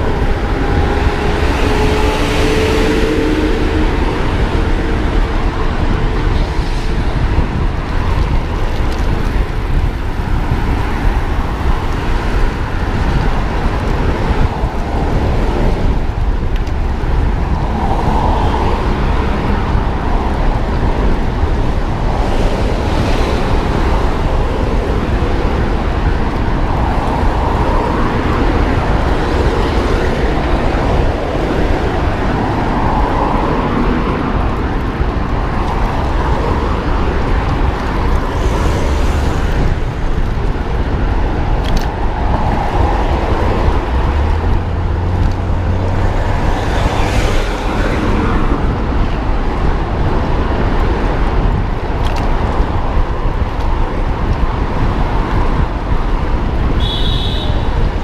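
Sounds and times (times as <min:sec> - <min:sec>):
passing traffic: 0:00.0 - 0:58.0
wind buffeting microphone: 0:00.0 - 0:58.0.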